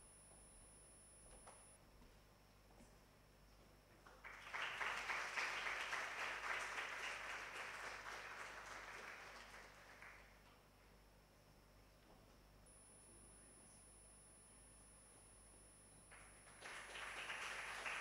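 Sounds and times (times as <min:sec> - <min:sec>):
audience applauding: 0:04.1 - 0:10.4, 0:16.1 - 0:18.0.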